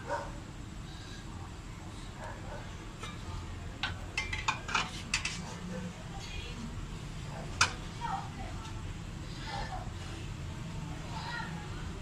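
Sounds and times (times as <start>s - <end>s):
kitchenware clinking and knocking: 3.8s - 5.4s.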